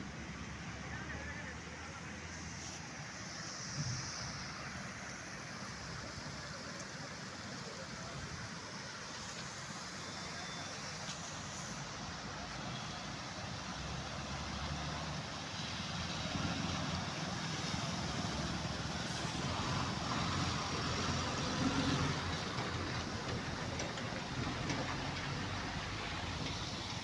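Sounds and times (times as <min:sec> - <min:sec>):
water rushing over a weir: 0:00.0 - 0:27.0
truck engine: 0:16.0 - 0:27.0.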